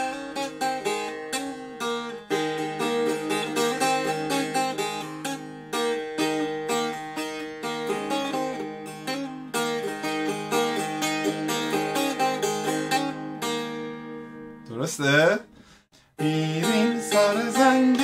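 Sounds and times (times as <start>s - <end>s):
plucked lute melody: 0.0s - 14.7s, 16.2s - 18.0s.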